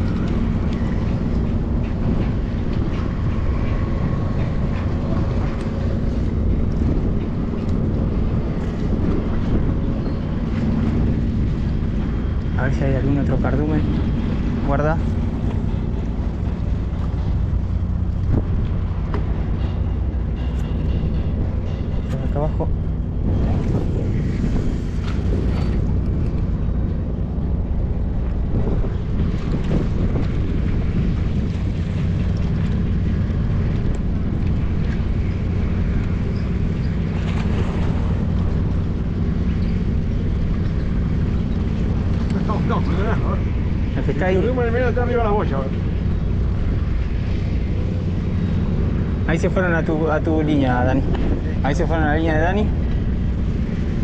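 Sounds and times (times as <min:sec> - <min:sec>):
low engine drone: 0:00.0 - 0:54.0
wind buffeting microphone: 0:00.0 - 0:54.0.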